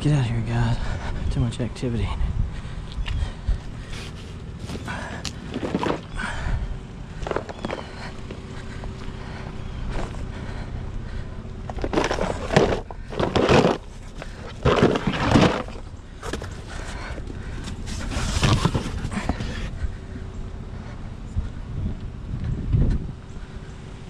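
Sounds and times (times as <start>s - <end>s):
faint steady hum: 0.0s - 24.0s
cardboard rustling and scraping: 3.8s - 6.2s, 7.2s - 8.4s, 11.7s - 19.7s.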